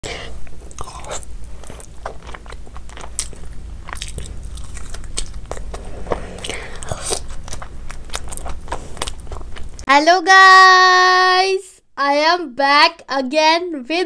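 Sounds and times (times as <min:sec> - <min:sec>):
crisp crunches of biting: 0:00.5 - 0:09.8
chewing clicks: 0:00.6 - 0:05.7.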